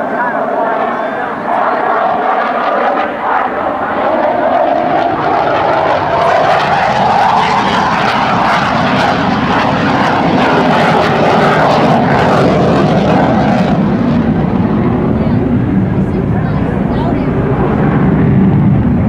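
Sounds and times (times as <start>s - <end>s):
fighter jet engines roaring: 0.0s - 19.0s.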